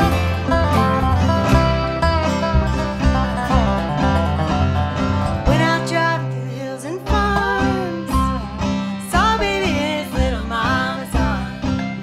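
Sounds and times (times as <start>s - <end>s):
bass line: 0.0s - 12.0s
plucked strings: 0.0s - 12.0s
person singing: 5.5s - 12.0s.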